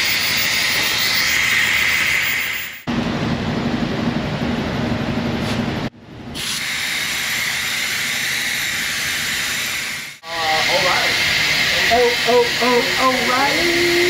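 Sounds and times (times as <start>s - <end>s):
vacuum brake bleeder hissing: 6.4s - 14.0s.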